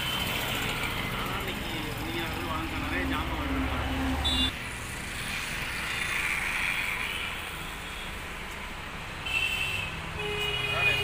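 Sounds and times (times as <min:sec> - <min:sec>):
passing vehicles rushing: 0:00.0 - 0:09.2.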